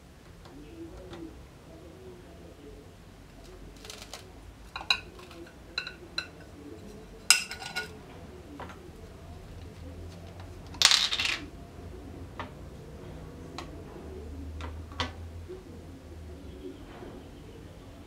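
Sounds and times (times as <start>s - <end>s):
plastic cap clattering on bench: 4.8s - 6.5s, 7.3s - 7.9s, 10.7s - 11.5s.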